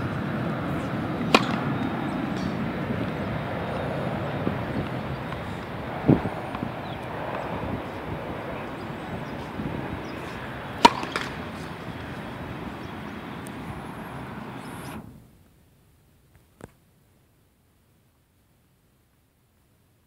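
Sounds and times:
steady background hiss: 0.0 - 20.0
tennis racket hitting ball: 1.2 - 3.2, 8.6 - 12.7.

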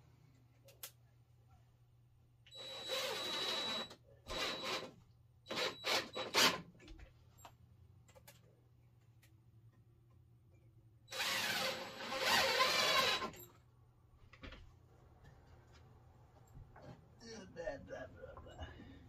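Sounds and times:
power drill whining: 2.5 - 6.6, 11.1 - 13.5.

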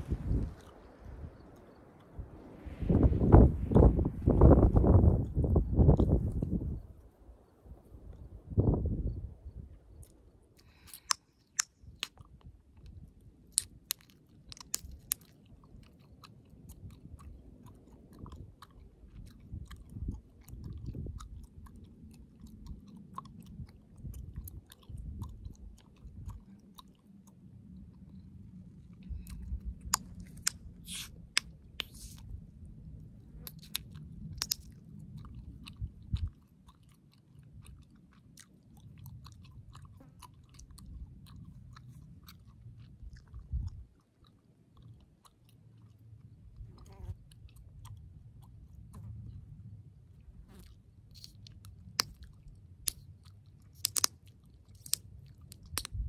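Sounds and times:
low rumble: 0.0 - 1.4
gum chewing with snaps and pops: 0.0 - 2.2, 3.1 - 6.8, 8.1 - 56.0.

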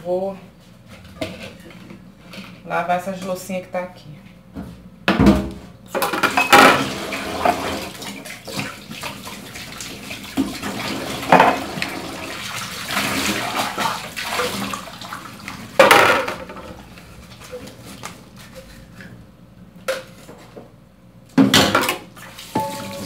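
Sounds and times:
plates and utensils clattering: 6.0 - 7.6, 11.3 - 11.7, 21.5 - 23.0
tap water running into sink: 6.5 - 16.9, 21.9 - 23.0.

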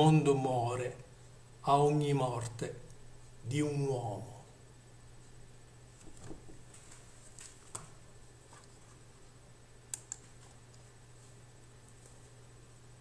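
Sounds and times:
low steady hum: 0.0 - 13.0
computer mouse clicks: 9.9 - 10.9.

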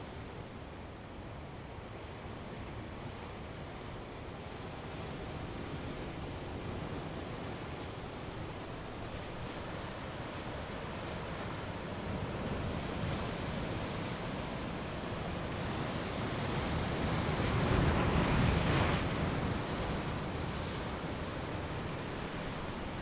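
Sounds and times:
ocean surf against rocks: 1.6 - 23.0.

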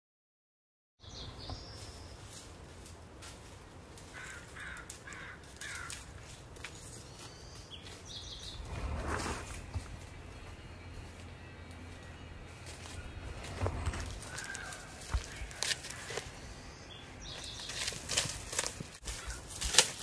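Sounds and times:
steady outdoor rumble: 1.0 - 20.0
bird calling: 12.8 - 19.5.

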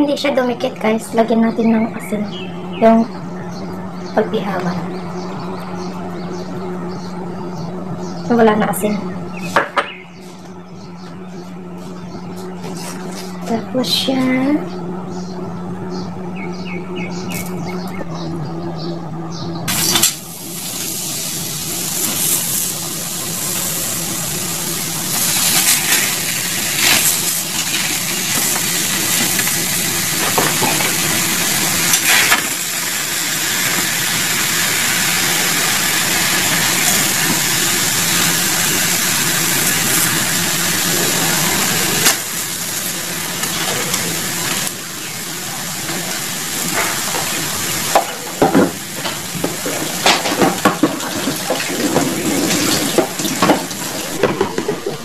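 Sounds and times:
fish sizzling in hot pan: 19.7 - 51.5.

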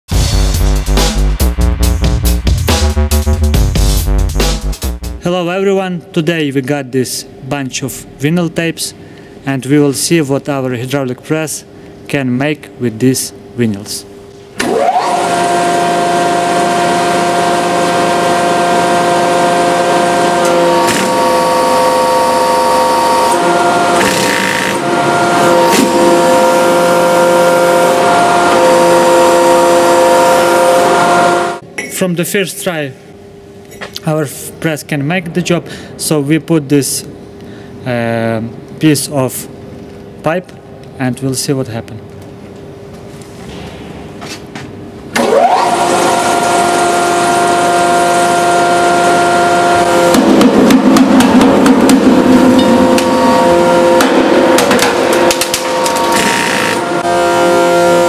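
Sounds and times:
hydraulic press pump whine: 14.1 - 31.9, 42.3 - 58.0.

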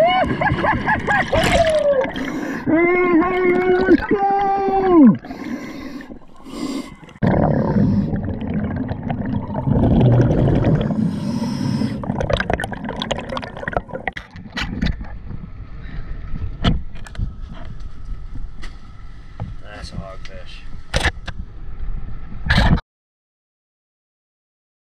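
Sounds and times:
underwater gurgling and bubbling: 0.3 - 15.6.

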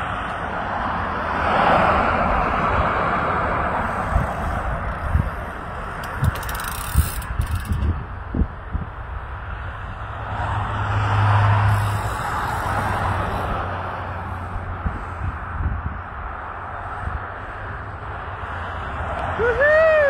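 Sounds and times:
tyre noise on asphalt: 0.0 - 20.0
sharp clicks and knocks: 6.0 - 8.0.

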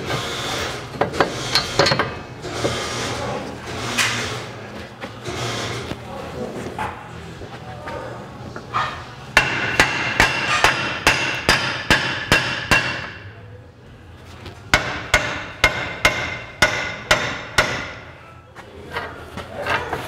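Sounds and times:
hammer striking metal: 9.4 - 13.3, 14.7 - 18.1.

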